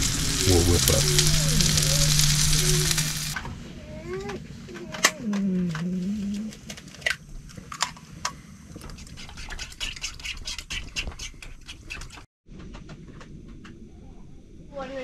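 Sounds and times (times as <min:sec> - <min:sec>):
fat crackling and popping: 0:00.0 - 0:03.4
sausage frying in a pan: 0:00.0 - 0:03.4.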